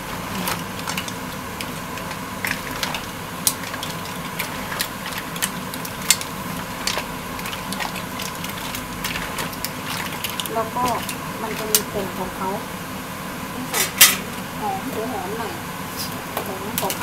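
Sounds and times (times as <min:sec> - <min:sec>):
steady background hum: 0:00.0 - 0:17.0
mussel shells clattering in a pan: 0:00.4 - 0:12.3.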